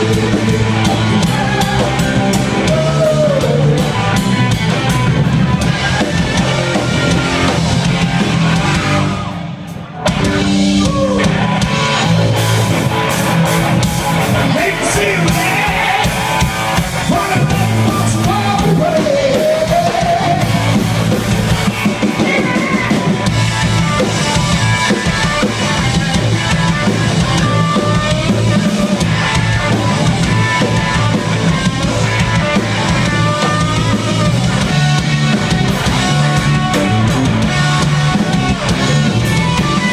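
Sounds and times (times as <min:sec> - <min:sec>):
male lead vocal: 0:00.0 - 0:04.1, 0:14.4 - 0:16.4, 0:17.0 - 0:20.8, 0:22.1 - 0:23.2
live rock band playing: 0:00.0 - 0:39.9.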